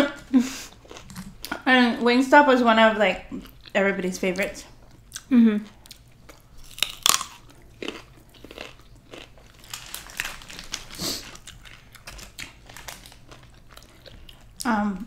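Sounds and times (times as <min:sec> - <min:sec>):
crunchy food chewing: 0:00.7 - 0:01.6, 0:04.9 - 0:14.7.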